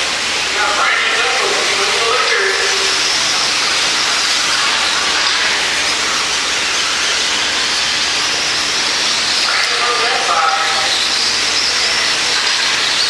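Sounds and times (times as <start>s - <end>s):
rc truck motors hissing: 0.0s - 13.0s.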